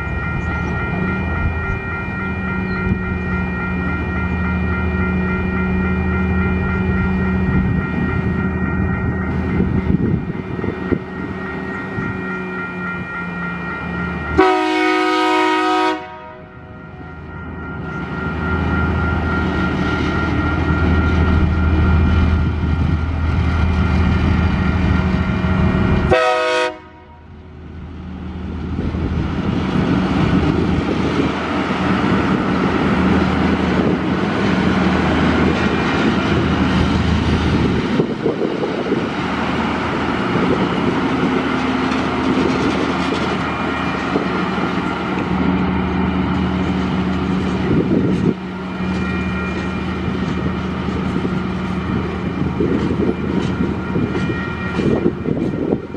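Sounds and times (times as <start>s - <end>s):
train wheels on rails: 0.0s - 55.9s
locomotive horn: 14.3s - 16.8s, 25.9s - 27.4s.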